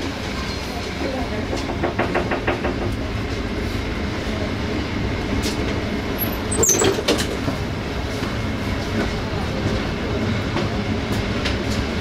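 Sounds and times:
train wheels rumbling: 0.0s - 12.0s
wheels clicking over rail joints: 6.2s - 7.6s.

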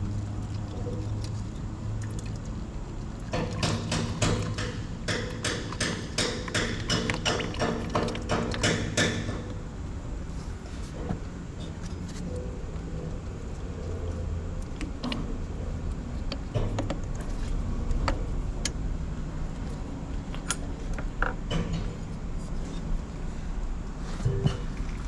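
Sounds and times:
steady low rumble: 9.5s - 25.0s.

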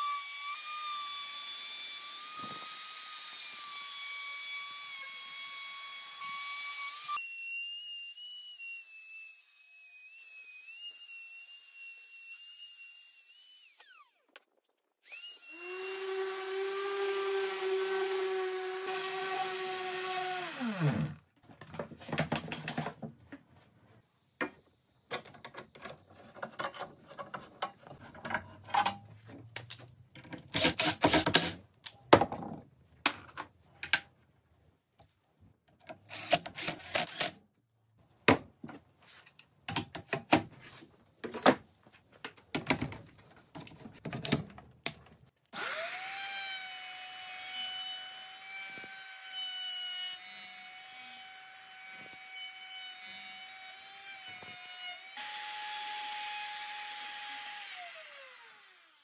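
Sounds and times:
router whining: 15.0s - 21.2s, 30.5s - 31.6s, 36.0s - 37.4s, 45.5s - 59.0s
cordless drill driving screws: 30.5s - 31.6s, 36.1s - 37.4s.

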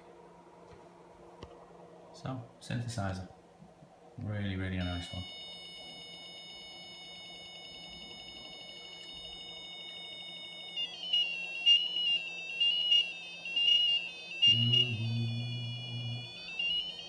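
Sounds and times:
high electronic buzzer tone: 4.8s - 17.0s.

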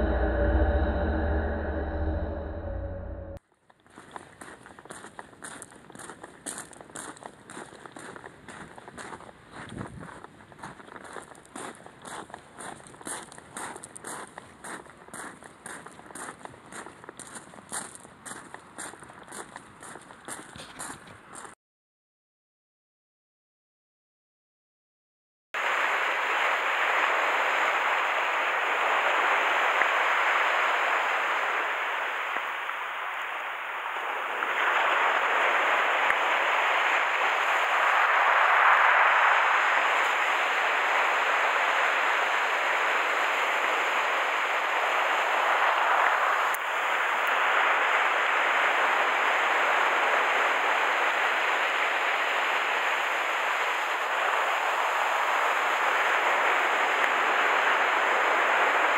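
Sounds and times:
surf breaking on beach: 25.6s - 58.9s.

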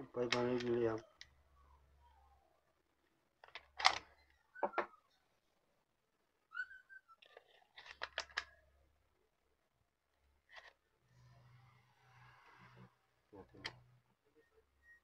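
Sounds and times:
wavering whistle-like chirp: 6.5s - 7.2s
battery clicking into charger slots: 7.8s - 8.5s.

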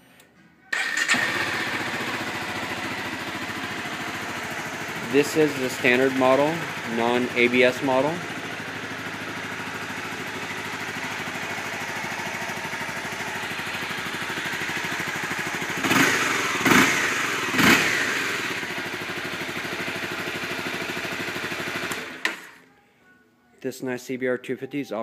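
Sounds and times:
motorcycle engine idling: 0.8s - 22.6s
engine revving blips: 15.8s - 18.6s.

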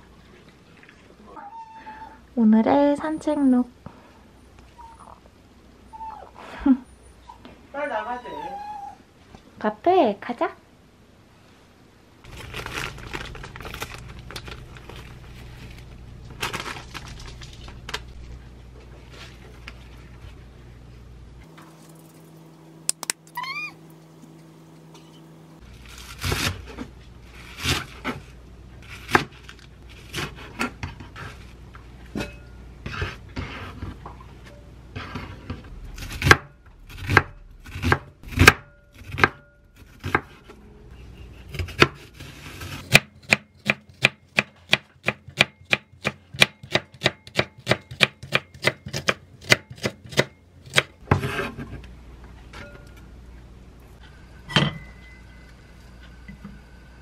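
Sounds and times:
steady low hum: 10.6s - 44.4s, 49.2s - 57.0s.

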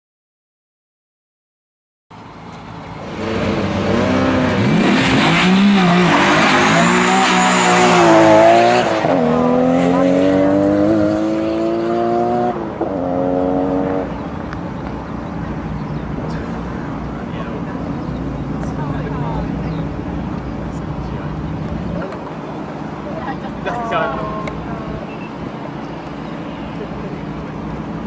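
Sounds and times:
car engine revving through gears: 3.0s - 14.2s.

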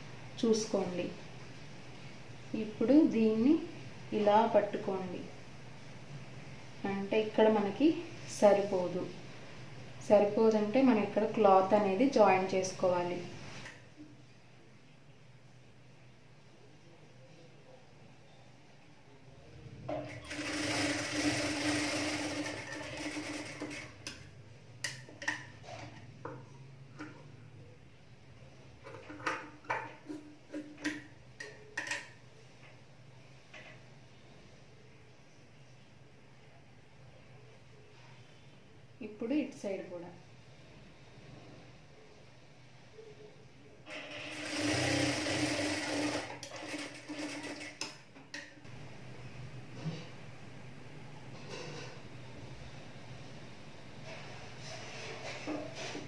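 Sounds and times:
sewing machine stitching: 20.0s - 24.0s, 43.9s - 47.9s
low steady hum: 45.4s - 54.6s.

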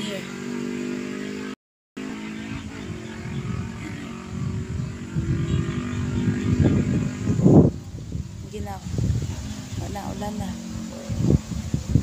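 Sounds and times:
wind buffeting microphone: 2.1s - 12.0s.

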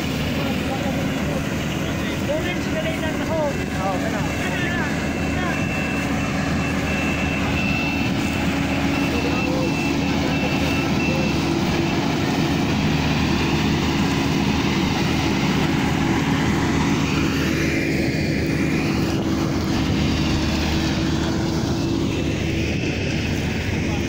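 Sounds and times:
combine harvester droning: 0.0s - 24.0s.

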